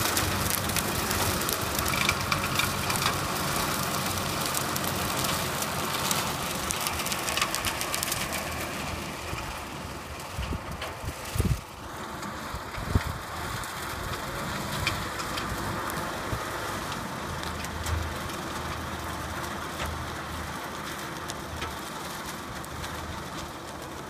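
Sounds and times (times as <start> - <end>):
manure spattering: 0.0 - 10.2
tractor engine drone: 0.0 - 24.0.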